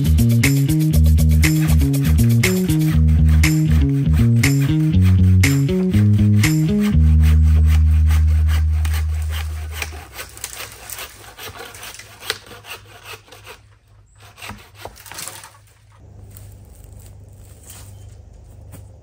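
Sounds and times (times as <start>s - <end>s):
woody clicks and scrapes: 0.0s - 18.6s.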